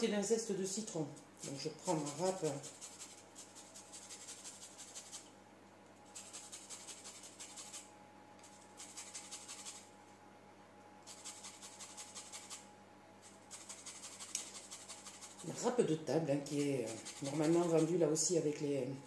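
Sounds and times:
grater scraping lemon peel: 0:01.4 - 0:05.3, 0:06.1 - 0:09.9, 0:11.0 - 0:15.8, 0:16.4 - 0:18.3.

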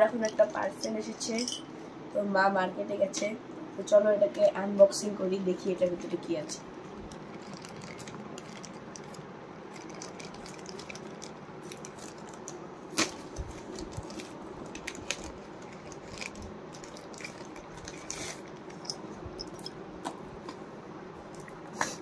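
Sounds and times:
plastic bag tearing and crumpling: 0:07.2 - 0:18.8.

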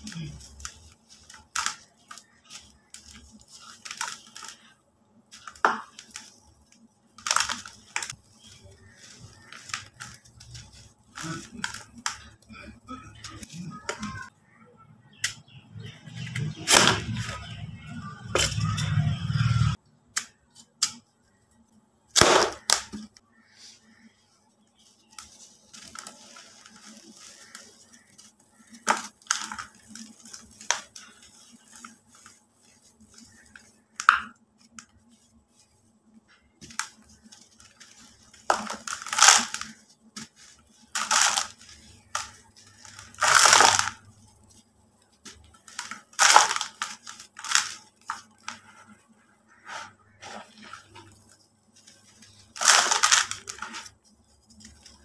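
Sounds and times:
gritty rubbing and trickling powder: 0:00.0 - 0:14.3, 0:20.5 - 0:55.0
concrete crunching: 0:36.4 - 0:44.5, 0:45.1 - 0:55.0
concrete cracking: 0:38.4 - 0:44.0, 0:45.3 - 0:48.6, 0:52.3 - 0:54.0.

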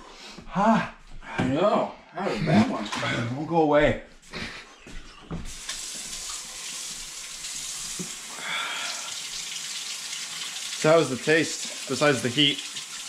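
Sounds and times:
tap water running into sink: 0:05.5 - 0:13.0.

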